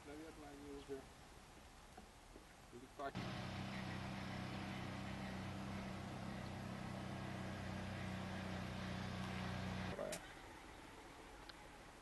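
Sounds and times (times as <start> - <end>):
engine droning: 3.2 - 10.1.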